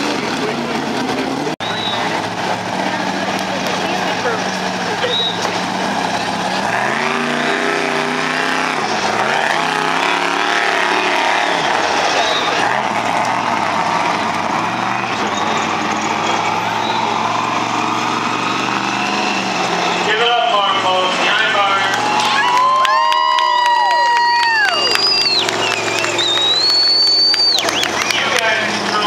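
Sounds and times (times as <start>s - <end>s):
truck engine revving: 0.0s - 29.0s.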